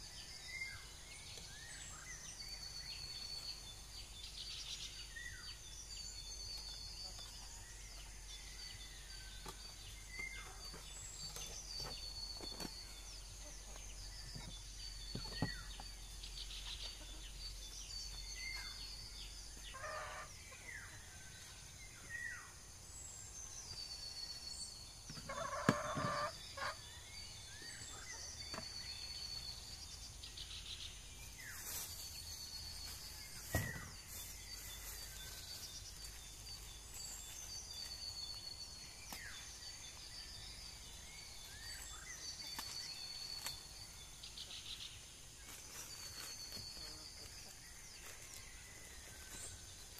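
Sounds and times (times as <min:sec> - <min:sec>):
chickens clucking: 0:25.2 - 0:26.8.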